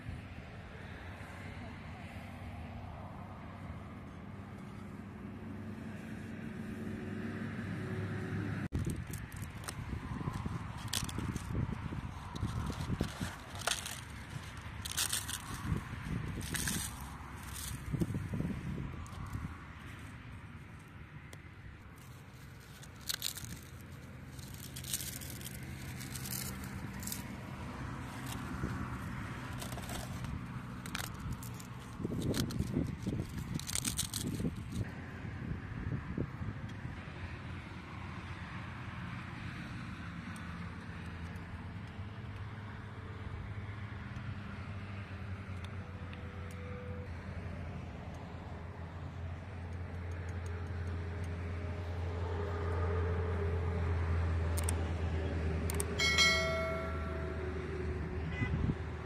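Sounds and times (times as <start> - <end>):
flatbread tearing: 22.0 - 27.3, 29.6 - 34.8.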